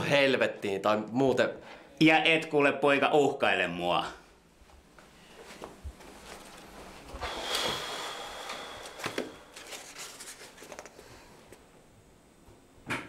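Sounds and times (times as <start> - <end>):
rustling and handling noises: 4.6 - 7.2, 8.9 - 11.7
thin high whine: 5.8 - 10.9.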